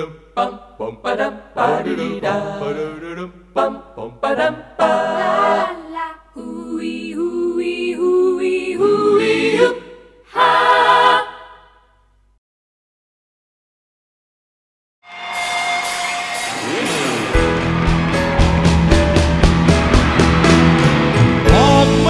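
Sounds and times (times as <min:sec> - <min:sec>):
voices singing in harmony: 0:00.0 - 0:12.0, 0:21.4 - 0:22.0.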